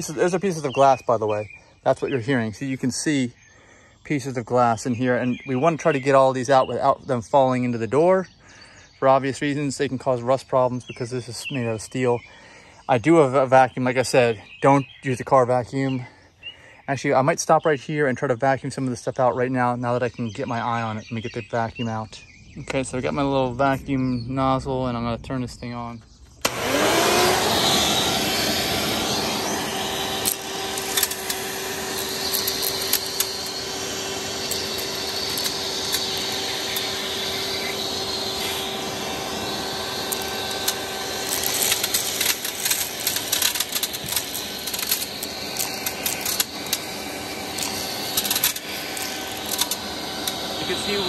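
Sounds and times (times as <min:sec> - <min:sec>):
vacuum cleaner motor whining: 0:26.4 - 0:51.0
glass pieces clicking in nozzle: 0:32.0 - 0:33.3, 0:34.5 - 0:35.5, 0:40.1 - 0:46.8, 0:47.5 - 0:50.4.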